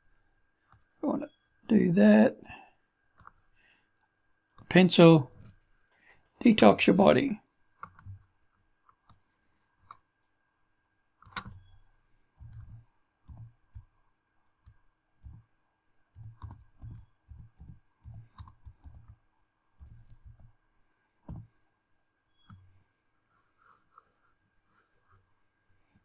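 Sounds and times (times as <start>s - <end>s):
typing on computer keyboard: 12.4s - 13.9s, 16.1s - 19.2s.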